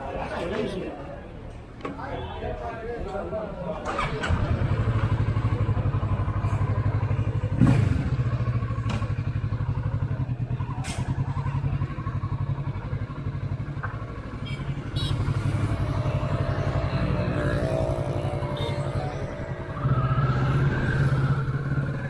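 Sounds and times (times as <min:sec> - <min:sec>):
motorcycle engine running: 0:04.6 - 0:22.0.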